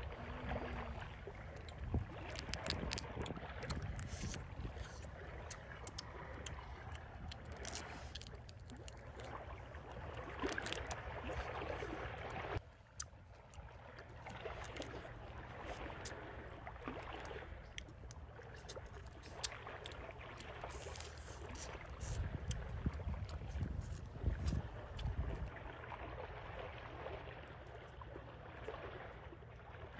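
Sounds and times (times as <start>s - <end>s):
person chewing with mouth clicks: 1.5s - 9.3s, 13.0s - 13.2s, 17.8s - 25.1s.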